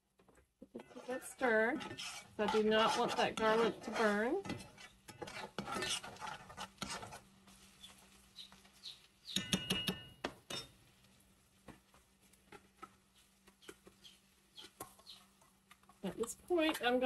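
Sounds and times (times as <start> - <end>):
metal spoon scraping skillet: 0.6 - 10.8, 12.3 - 17.0.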